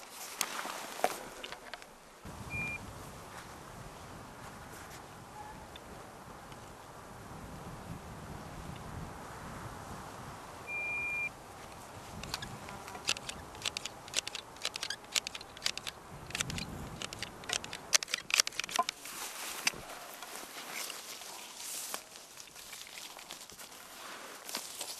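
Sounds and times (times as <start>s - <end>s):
rustling through grass: 0.0s - 1.5s, 16.4s - 24.9s
high electronic beep: 2.5s - 2.8s, 10.7s - 11.3s
sharp clicks: 12.2s - 19.0s.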